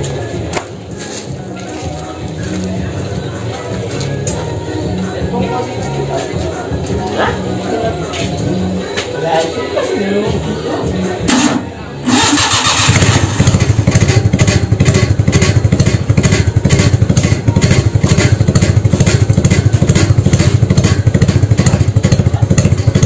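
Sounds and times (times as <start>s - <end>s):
car engine idling: 11.2s - 23.0s.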